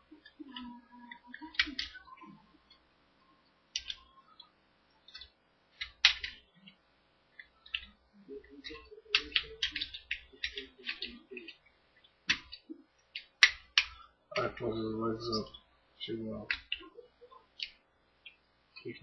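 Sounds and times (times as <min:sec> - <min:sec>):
plastic toy clicking and snapping: 0:01.3 - 0:02.0.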